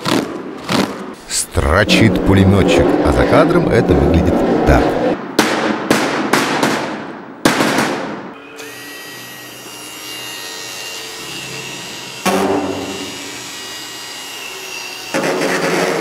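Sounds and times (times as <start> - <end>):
motor buzzing against iron sheet: 8.4 - 16.0.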